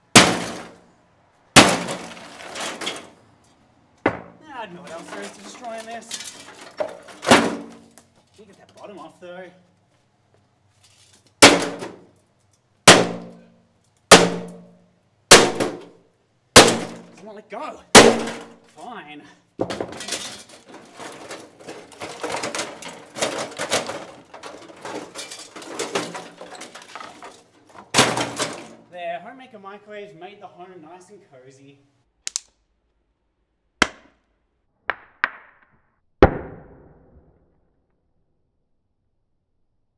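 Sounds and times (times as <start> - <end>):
sharp hard impacts: 0.0 - 0.8, 1.5 - 3.1, 11.4 - 12.1, 12.8 - 13.5, 14.1 - 16.0, 16.6 - 17.2, 17.9 - 18.6
sledgehammer clanging on sheet steel: 16.6 - 17.2, 17.9 - 18.6.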